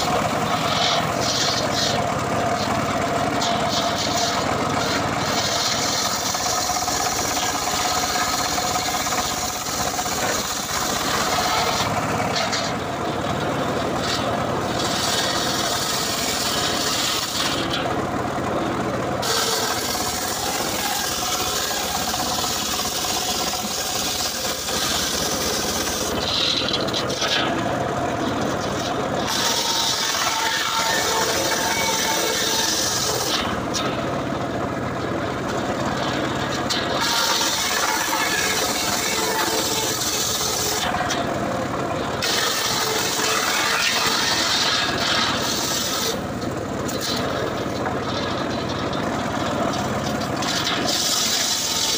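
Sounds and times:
circular saw cutting wood: 0.0s - 51.9s
saw drive engine running: 0.0s - 51.9s.

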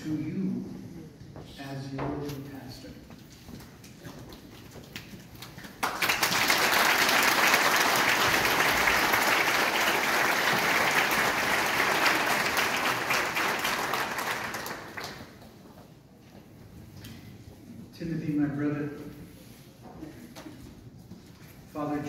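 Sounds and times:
congregation applauding: 4.3s - 15.6s.

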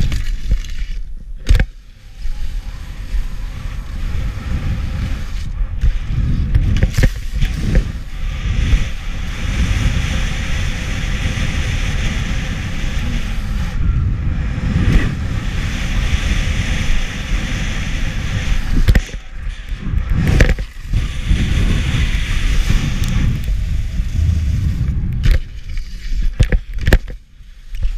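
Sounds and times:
wind buffeting microphone: 0.0s - 27.9s
skis hissing on snow: 1.9s - 6.5s, 20.7s - 24.8s.

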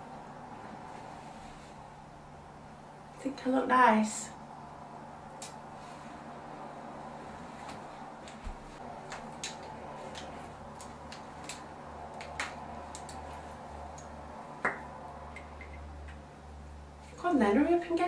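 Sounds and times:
low steady hum: 0.0s - 18.0s
makeup items clicking: 9.4s - 13.4s.

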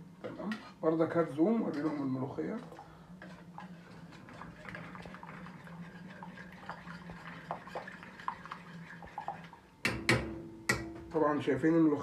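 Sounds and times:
liquid sloshing: 2.7s - 9.7s.

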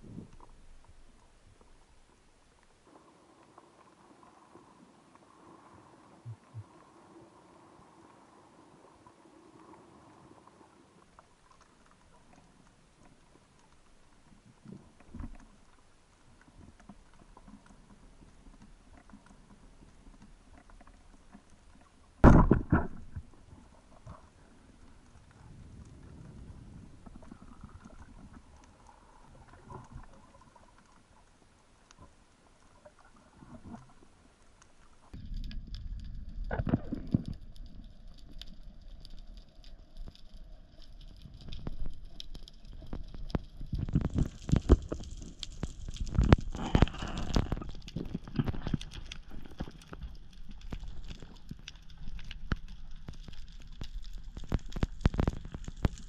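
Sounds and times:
low rumble of moving water: 0.0s - 56.0s
underwater clicking and crackling: 0.0s - 56.0s
heavy underwater thumps: 22.2s - 23.2s.

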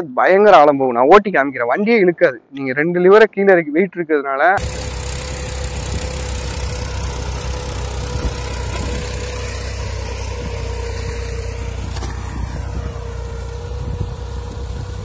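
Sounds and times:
tractor diesel engine running: 4.6s - 15.0s.

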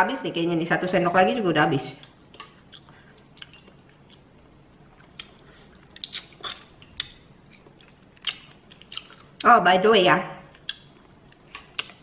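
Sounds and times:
person chewing: 2.0s - 9.4s, 10.5s - 12.0s
mouth clicks: 6.0s - 7.2s.

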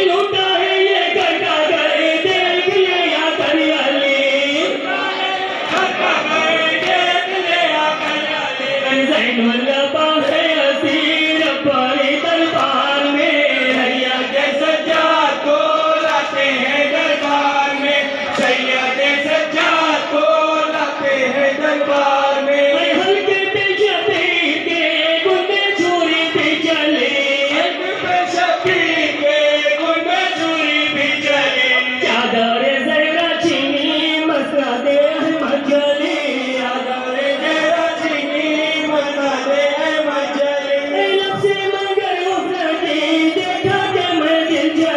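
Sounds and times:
men chanting a mourning lament: 0.0s - 44.9s.

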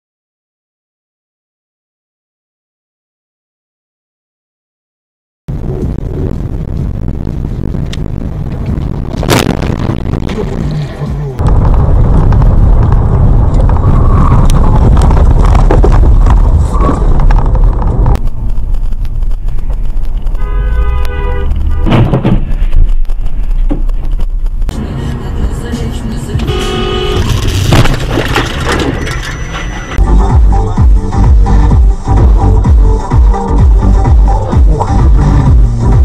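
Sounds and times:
road and engine rumble: 5.5s - 36.0s
car horn: 20.3s - 22.2s, 26.4s - 27.7s
thud: 21.8s - 24.3s, 27.2s - 29.2s.

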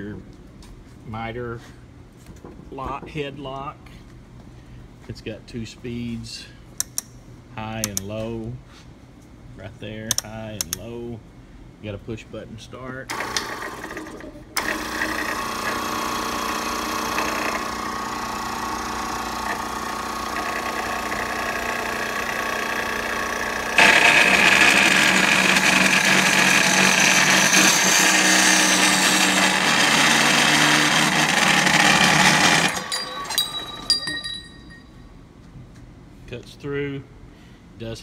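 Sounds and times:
cold saw motor humming: 13.1s - 33.9s
saw blade cutting metal: 23.3s - 34.3s.

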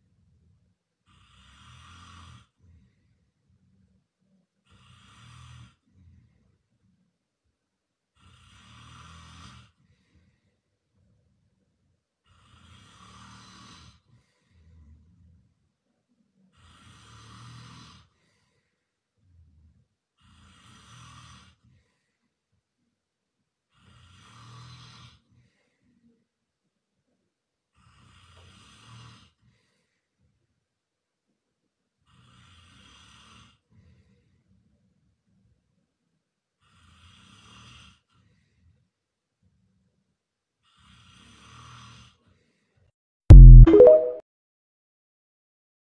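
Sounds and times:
man snoring: 1.2s - 2.5s, 12.5s - 14.0s.

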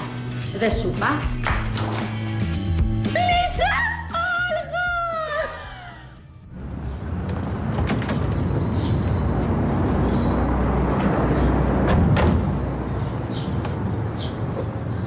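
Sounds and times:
street traffic rumble: 4.8s - 15.0s.

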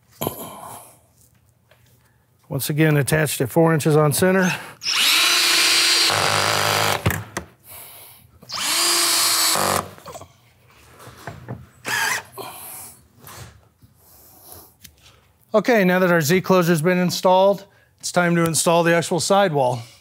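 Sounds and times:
cordless drill driving screws: 4.8s - 7.2s, 8.5s - 10.1s, 11.8s - 12.3s.

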